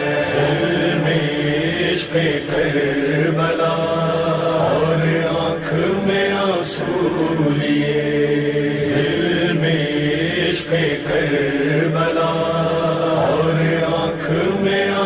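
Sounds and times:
steady low drone: 0.0 - 10.4
person chanting a lament: 0.0 - 15.0.

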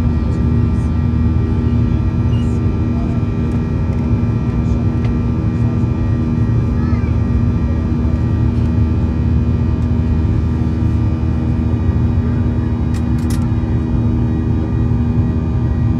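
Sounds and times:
airplane cabin engine drone: 0.0 - 15.9
constant hum: 0.0 - 15.9.

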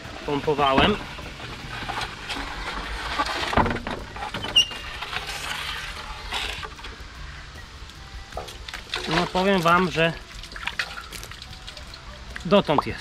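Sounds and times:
bailer scraping in pipe: 0.0 - 7.0.

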